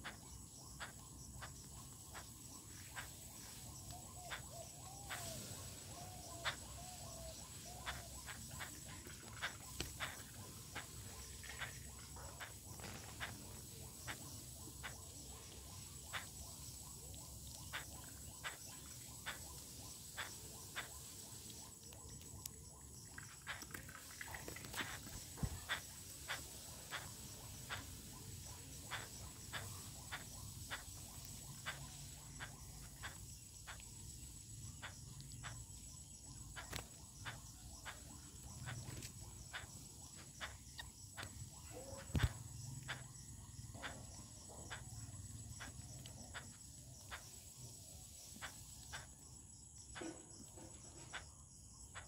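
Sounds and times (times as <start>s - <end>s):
faint high-pitched hiss: 0.0s - 52.0s
beaks tapping on concrete: 6.0s - 21.0s, 21.6s - 34.0s, 36.6s - 43.1s.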